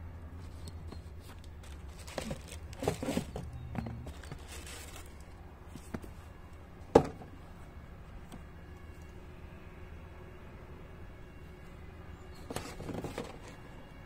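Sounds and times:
handling noise: 0:00.4 - 0:07.4
tissue paper rustling and crinkling: 0:01.3 - 0:03.4, 0:04.1 - 0:05.2.

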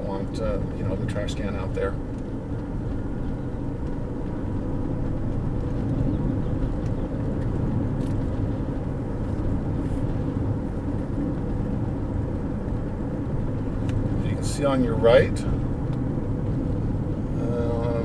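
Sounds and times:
car engine and road noise: 0:00.0 - 0:18.0.

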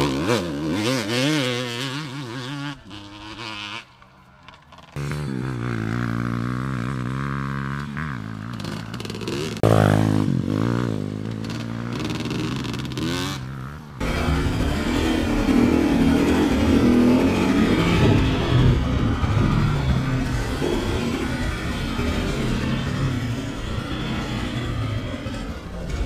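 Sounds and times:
dirt bike engine revving: 0:00.0 - 0:26.0.

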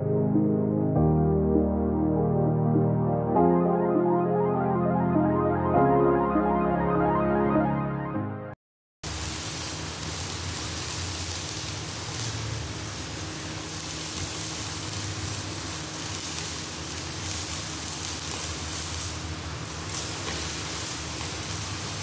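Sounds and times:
arc welding hiss: 0:09.1 - 0:22.0.

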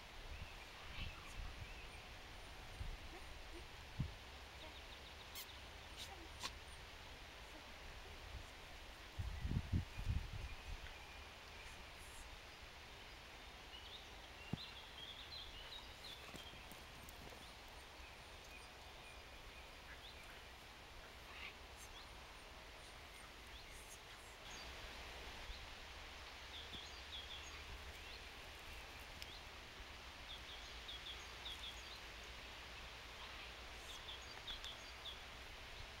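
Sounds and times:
wind rumble on microphone: 0:08.1 - 0:10.9.

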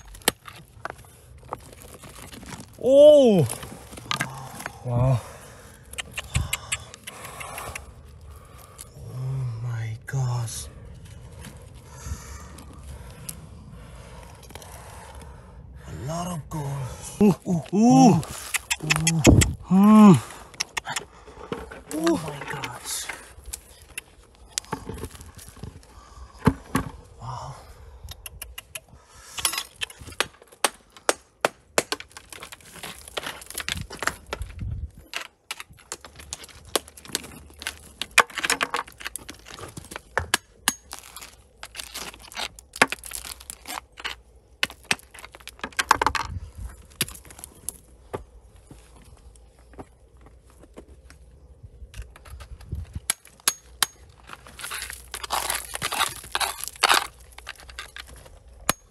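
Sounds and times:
rocks knocking and clicking: 0:00.0 - 0:05.1, 0:05.8 - 0:08.9, 0:17.2 - 0:27.1, 0:28.1 - 0:48.9, 0:51.8 - 0:58.9.

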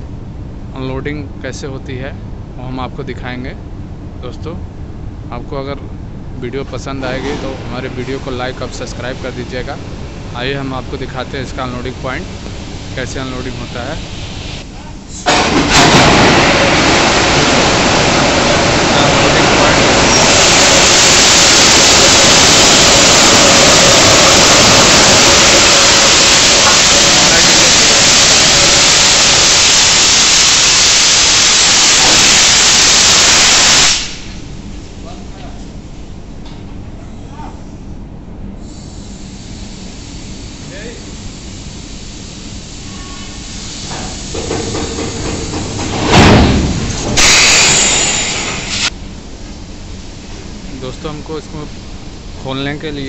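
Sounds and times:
compressed air hissing: 0:11.0 - 0:15.8, 0:17.6 - 0:34.6, 0:38.6 - 0:46.0, 0:47.0 - 0:49.0.

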